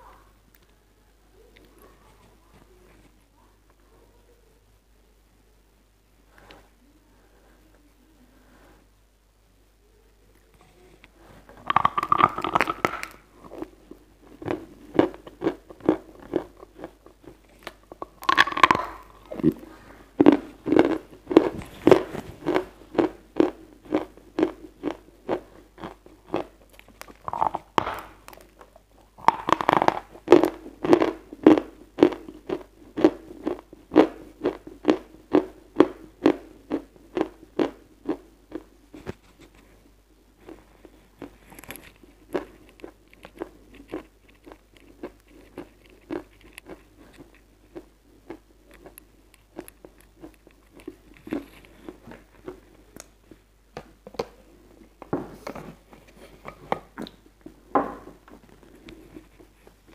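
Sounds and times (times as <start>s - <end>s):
crisp chewing crunches: 11.6s - 39.7s, 40.4s - 53.4s.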